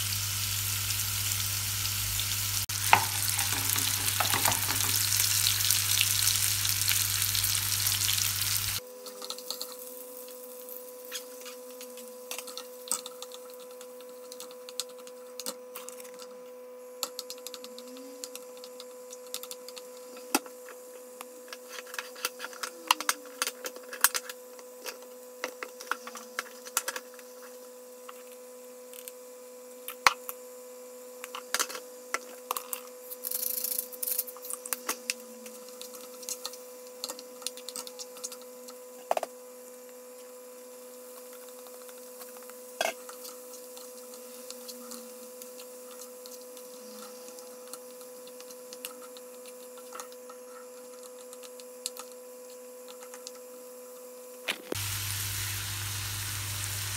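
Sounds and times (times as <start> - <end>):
steady hum: 0.0 - 8.8, 54.7 - 56.9
spatula tapping and scraping pan: 2.8 - 5.1.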